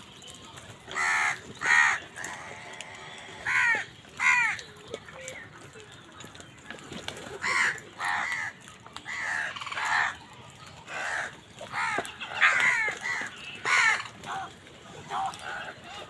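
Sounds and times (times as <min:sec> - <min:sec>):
crows cawing: 0:00.9 - 0:04.7, 0:07.4 - 0:16.0.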